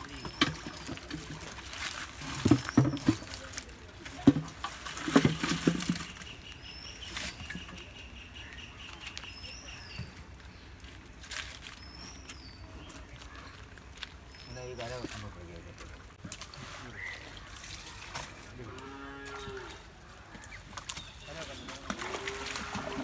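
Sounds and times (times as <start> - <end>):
bird chirping: 6.0 - 10.8, 11.6 - 15.6.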